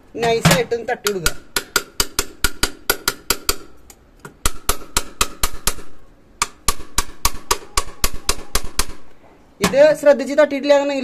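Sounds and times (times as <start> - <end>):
small hammer tapping metal tap: 1.0 - 9.0.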